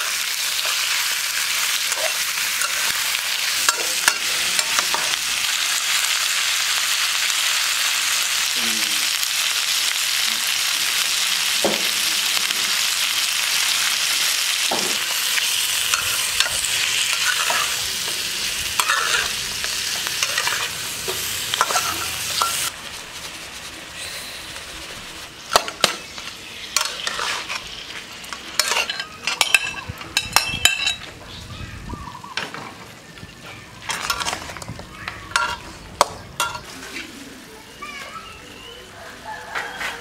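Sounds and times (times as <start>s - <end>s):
chicken sizzling in wok: 0.0s - 40.0s
metal spatula scraping pan: 15.8s - 17.8s, 18.8s - 23.7s, 26.8s - 27.8s, 28.6s - 29.8s.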